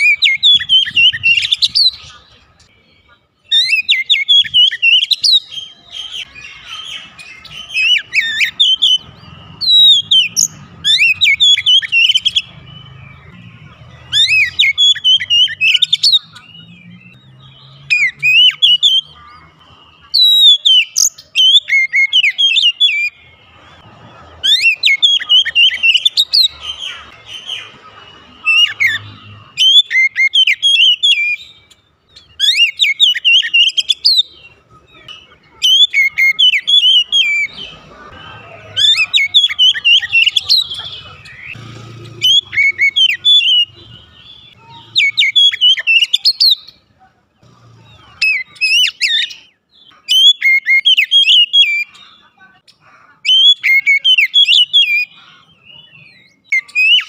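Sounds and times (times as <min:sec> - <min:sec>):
bird singing whistled phrases: 0:00.0 - 0:19.2, 0:20.0 - 0:23.2, 0:28.4 - 0:31.6, 0:32.2 - 0:34.5, 0:35.1 - 0:37.7, 0:42.2 - 0:46.8, 0:48.2 - 0:52.0, 0:53.2 - 0:57.0.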